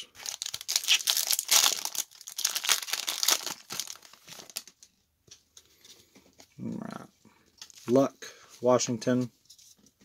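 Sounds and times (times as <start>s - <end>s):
foil wrapper crinkling and tearing: 0.0s - 4.8s.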